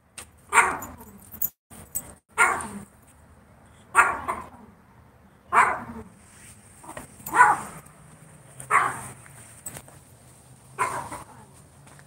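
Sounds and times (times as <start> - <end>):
dog barking: 0.5 - 1.0, 2.4 - 2.8, 3.9 - 4.5, 5.5 - 6.0, 7.3 - 7.8, 8.7 - 9.2, 10.8 - 11.4.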